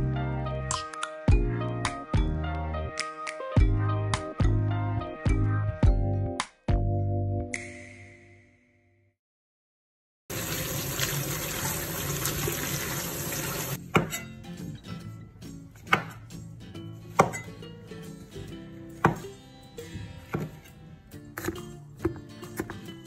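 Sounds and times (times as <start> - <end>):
water running: 10.3 - 13.8
knife chopping on cutting board: 13.9 - 14.2, 15.8 - 16.2, 17.1 - 17.4, 19.0 - 19.2, 20.3 - 20.6.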